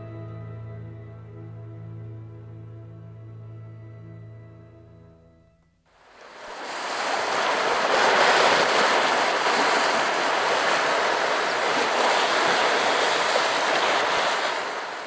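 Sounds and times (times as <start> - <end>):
waves washing over rocks: 6.0 - 15.0.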